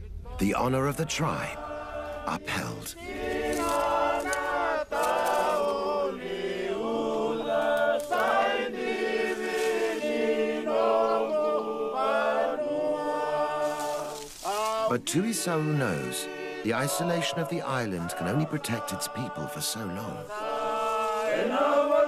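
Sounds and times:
group of voices chanting in harmony: 0:00.0 - 0:22.0.

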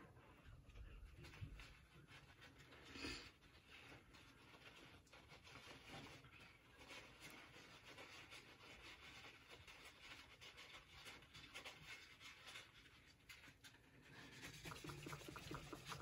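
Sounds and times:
faint scratchy room tone: 0:00.0 - 0:16.0
paper towel rubbing on metal: 0:01.1 - 0:16.0.

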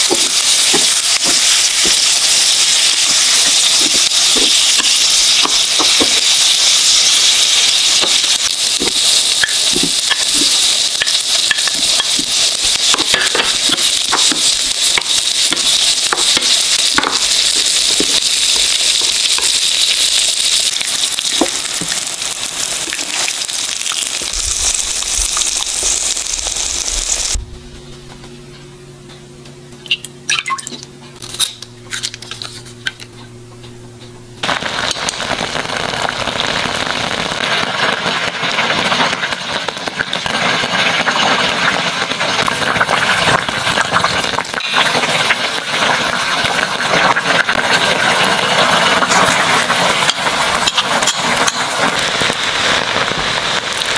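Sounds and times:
food sizzling in frying pan: 0:00.0 - 0:27.4, 0:34.4 - 0:53.9
water boiling: 0:00.0 - 0:27.4, 0:29.8 - 0:33.0, 0:34.3 - 0:53.9
steady low hum: 0:21.4 - 0:37.5.

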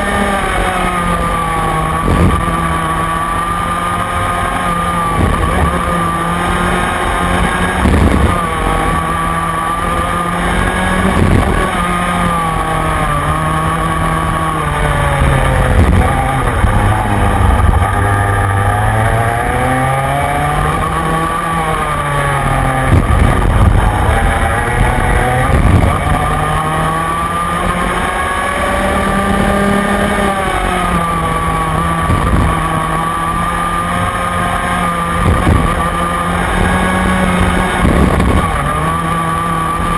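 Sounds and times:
kart engine racing: 0:00.0 - 0:39.9.

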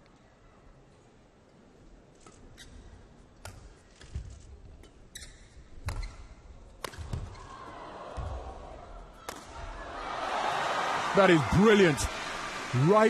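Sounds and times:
crowd noise: 0:07.3 - 0:13.0.

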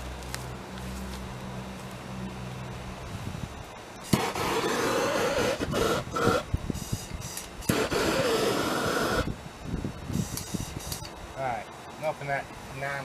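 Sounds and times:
small power tool motor whining: 0:04.1 - 0:09.3.

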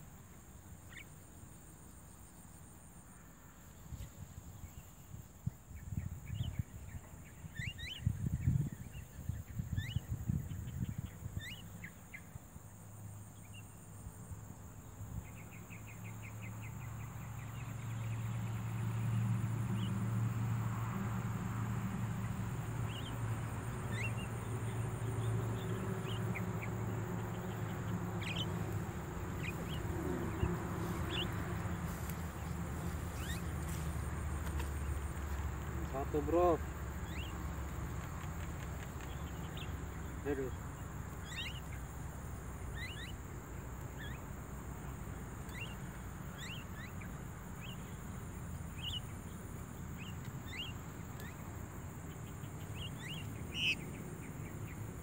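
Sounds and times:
birds chirping: 0:00.0 - 0:55.0
bird trill: 0:23.8 - 0:33.7, 0:35.9 - 0:37.4, 0:41.2 - 0:41.9, 0:42.7 - 0:43.2, 0:45.4 - 0:48.0, 0:50.0 - 0:51.4, 0:52.1 - 0:54.8
rustling in dry straw: 0:28.5 - 0:35.5.

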